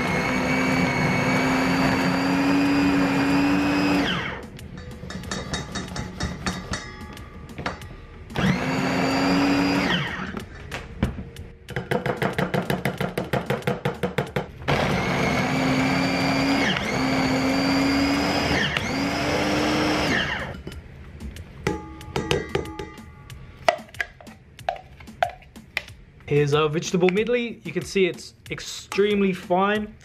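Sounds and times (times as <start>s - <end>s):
food chopper motor bursts: 0.0s - 4.5s, 8.4s - 10.4s, 14.7s - 20.6s.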